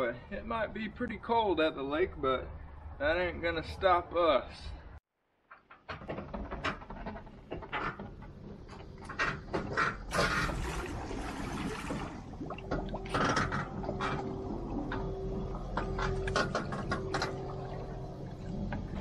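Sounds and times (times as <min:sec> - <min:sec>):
boat creaking and knocking: 0:05.5 - 0:19.0.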